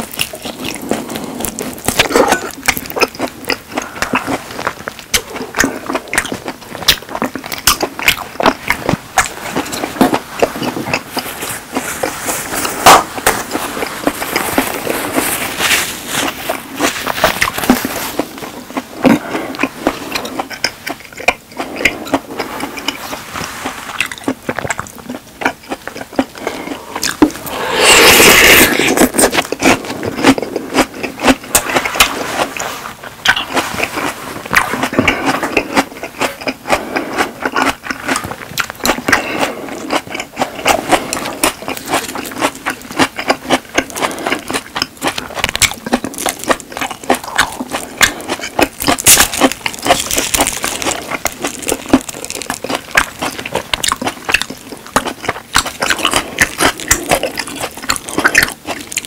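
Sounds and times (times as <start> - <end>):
wet chewing mouth sounds: 0.0 - 59.0
loud rushing noise: 27.4 - 29.0.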